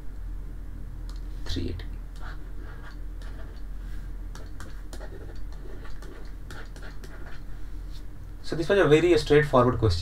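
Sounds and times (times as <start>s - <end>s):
steady low hum: 0.0s - 10.0s
stylus tapping on pen tablet: 4.3s - 7.3s.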